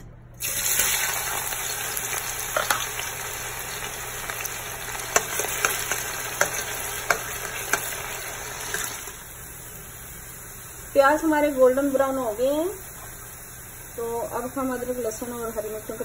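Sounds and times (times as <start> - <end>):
onions sizzling in hot oil: 0.4 - 16.0.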